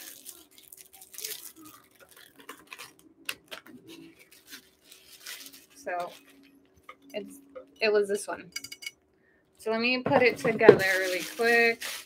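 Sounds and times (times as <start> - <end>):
wrapping rustling: 0.0 - 7.1, 10.1 - 12.0.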